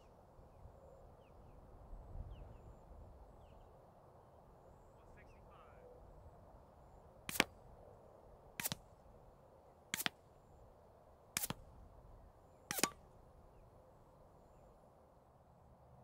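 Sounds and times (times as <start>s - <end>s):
suppressed pistol shots: 8.6s - 8.9s, 12.7s - 13.0s.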